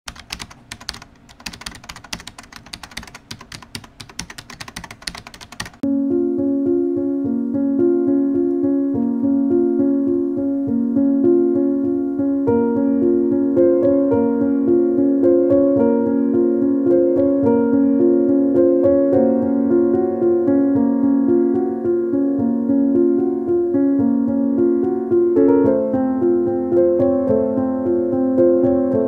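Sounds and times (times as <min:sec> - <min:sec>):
keyboard typing: 0:00.1 - 0:05.8
piano background music: 0:00.1 - 0:29.0.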